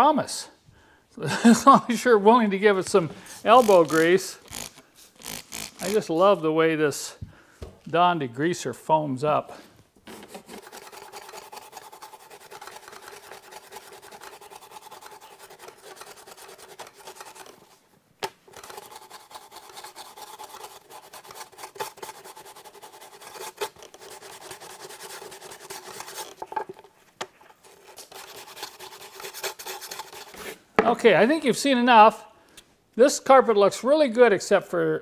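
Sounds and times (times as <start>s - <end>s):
bristle brush scrubbing carpet: 3.3s - 6.2s.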